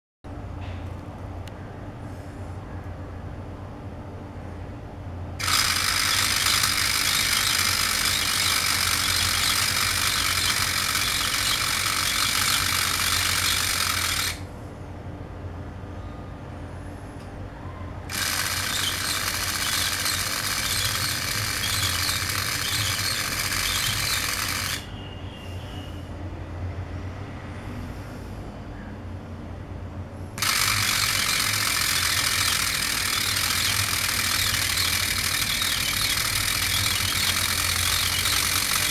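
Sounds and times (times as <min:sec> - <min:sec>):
motor whirring and gears grinding: 0:05.4 - 0:14.4, 0:18.1 - 0:24.9, 0:30.4 - 0:38.9.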